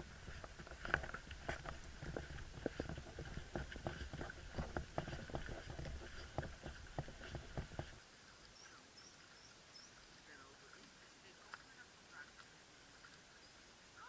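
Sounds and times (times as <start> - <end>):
footsteps on wooden boardwalk: 0.0 - 8.0
faint high bird chirps: 8.5 - 10.5, 13.3 - 14.0.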